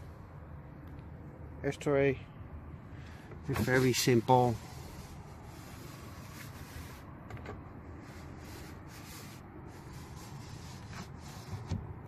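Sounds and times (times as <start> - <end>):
window crank rubbing: 3.4 - 12.0.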